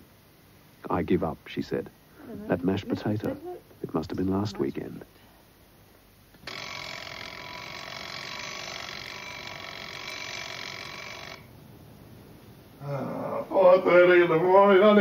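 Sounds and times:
alarm clock bell ringing: 0:06.5 - 0:11.5.

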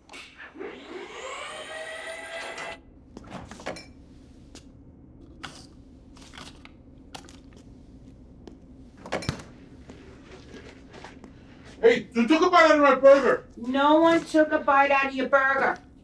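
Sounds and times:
electric lift motor whining: 0:00.4 - 0:02.8.

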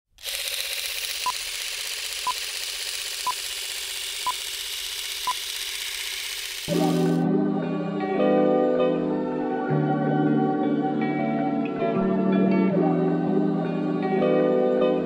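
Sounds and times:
projector whir and hiss: 0:00.3 - 0:07.2.

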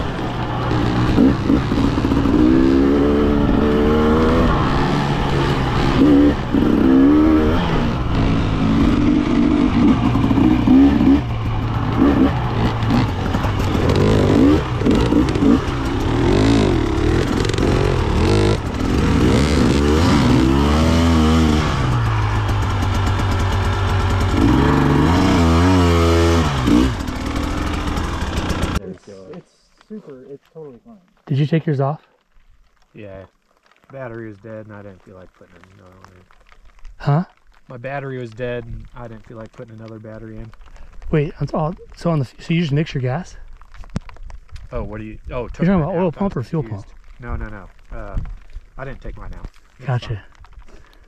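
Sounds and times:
dirt bike engine revving: 0:00.0 - 0:28.8.

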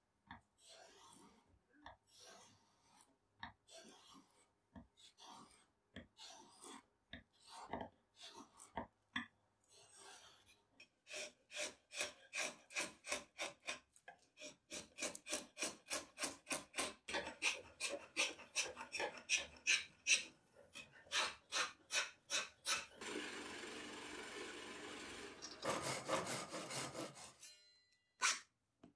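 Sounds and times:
rasp scraping hardwood: 0:00.6 - 0:01.5, 0:02.1 - 0:03.1, 0:03.7 - 0:08.8, 0:09.7 - 0:23.2, 0:25.0 - 0:27.4.

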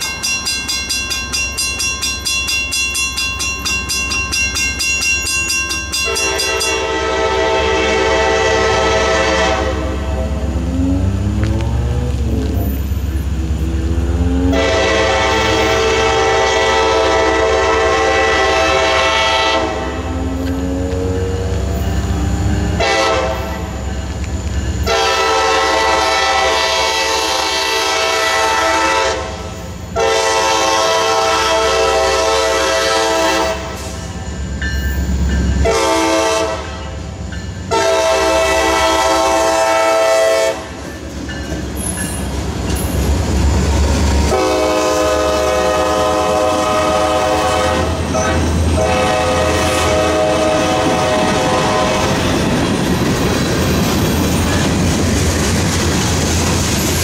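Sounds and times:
diesel locomotive rumble: 0:05.0 - 0:57.0
locomotive air horn blasts: 0:06.0 - 0:10.4, 0:14.5 - 0:21.0, 0:22.6 - 0:23.8, 0:24.9 - 0:34.0, 0:35.6 - 0:37.0, 0:37.7 - 0:40.8, 0:44.2 - 0:52.3.

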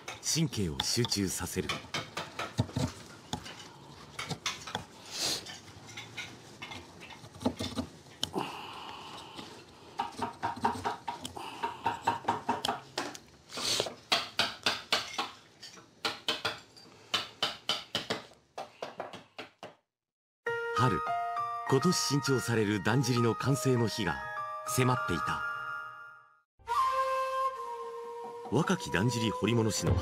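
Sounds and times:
chisel paring wood: 0:00.8 - 0:03.5, 0:09.9 - 0:13.2, 0:14.1 - 0:15.4, 0:17.2 - 0:19.8.

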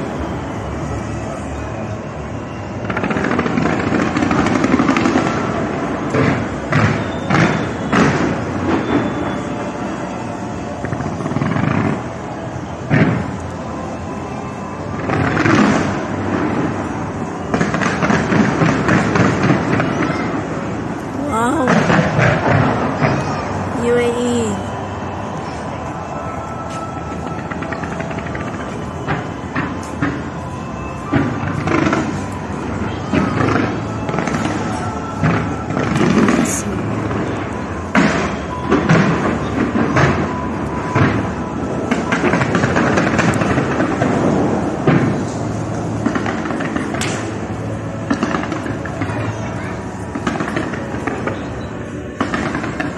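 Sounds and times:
fireworks bangs and crackling: 0:00.0 - 0:52.9
loud firework shell bursts: 0:02.8 - 0:09.5.

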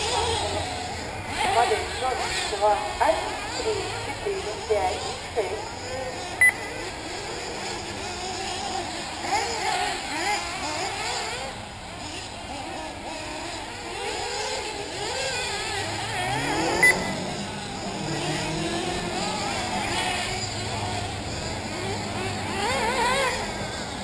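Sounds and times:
rc car engines whining: 0:00.0 - 0:24.0
loud high beeps: 0:06.4 - 0:06.7, 0:16.8 - 0:17.3.

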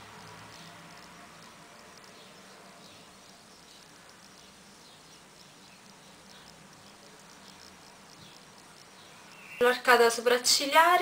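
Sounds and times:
faint room tone hiss: 0:00.0 - 0:11.0.

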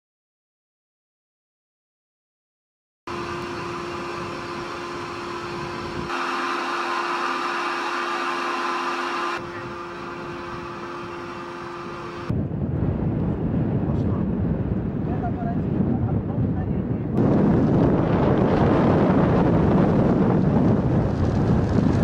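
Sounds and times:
machinery hum and whir: 0:03.1 - 0:12.7.

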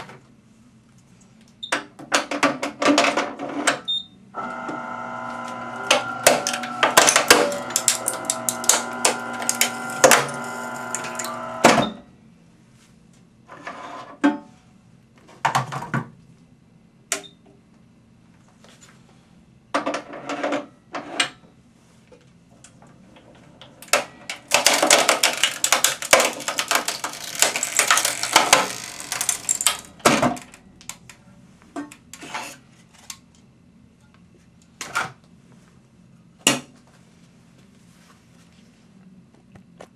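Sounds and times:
shredder motor whine: 0:04.4 - 0:12.0, 0:24.5 - 0:30.5
hard drive crunching and cracking: 0:04.5 - 0:11.7, 0:24.4 - 0:30.6.

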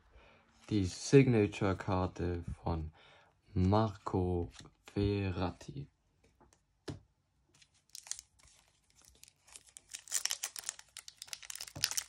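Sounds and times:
foil wrapper tearing and crinkling: 0:07.8 - 0:12.0.

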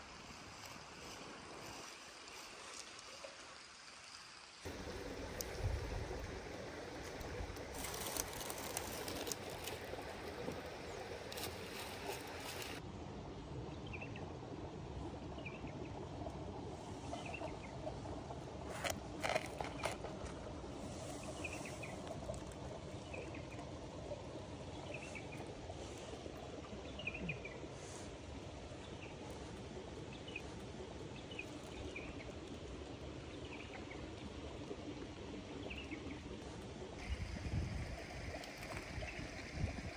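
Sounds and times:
flowing stream: 0:00.0 - 0:39.9
wood fire crackling: 0:04.6 - 0:12.8.

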